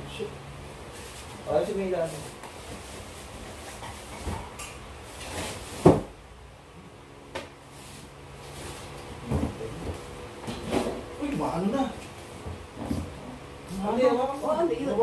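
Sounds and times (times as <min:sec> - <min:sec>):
faint steady hum: 0:00.0 - 0:15.0
knocks and thumps of handling: 0:09.3 - 0:11.0.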